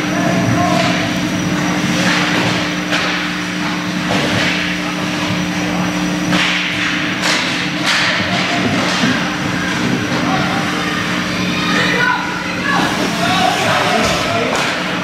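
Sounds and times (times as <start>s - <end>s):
low rink hum: 0.0s - 15.0s
players hitting the boards: 2.0s - 4.8s, 6.3s - 10.5s, 12.8s - 15.0s.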